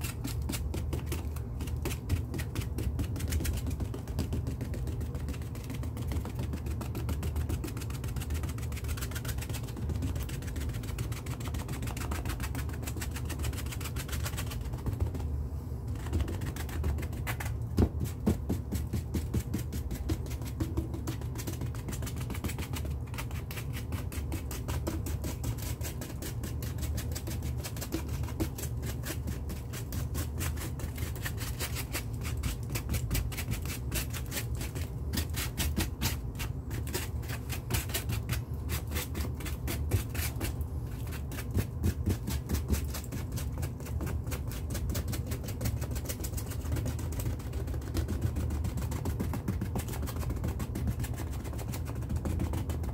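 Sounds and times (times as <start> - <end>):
rapid tapping on canvas: 0.0 - 15.3, 15.9 - 52.9
steady low hum: 0.0 - 52.9.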